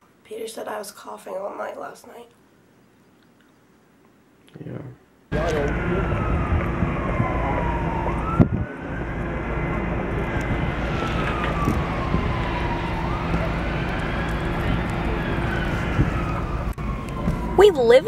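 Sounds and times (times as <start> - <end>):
low rumble: 5.3 - 17.6
siren wailing: 5.3 - 18.0.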